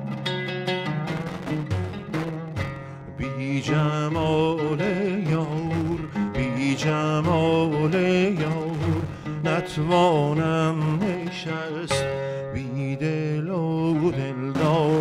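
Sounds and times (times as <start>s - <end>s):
oud plucked: 0.0s - 15.0s
wordless singing: 3.2s - 15.0s.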